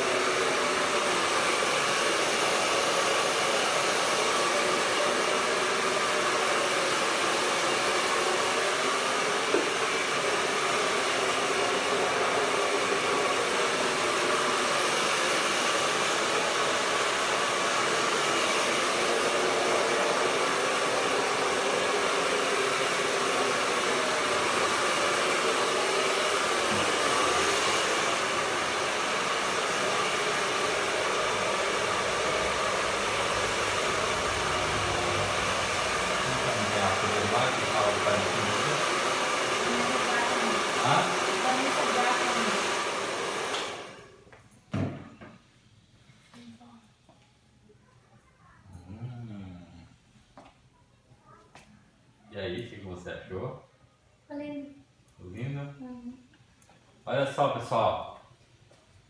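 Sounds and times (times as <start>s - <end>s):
hair dryer blowing: 0.0s - 45.0s.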